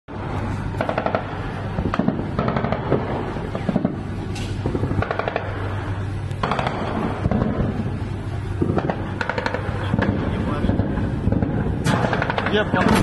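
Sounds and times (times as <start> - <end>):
steady low hum: 0.1 - 13.0
machine-gun fire bursts: 0.8 - 4.0, 4.7 - 5.6, 6.4 - 7.8, 8.6 - 13.0.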